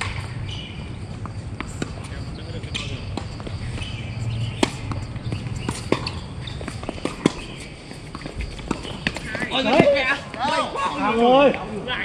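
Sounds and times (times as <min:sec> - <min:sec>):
rackets striking tennis balls: 0:00.0 - 0:11.0.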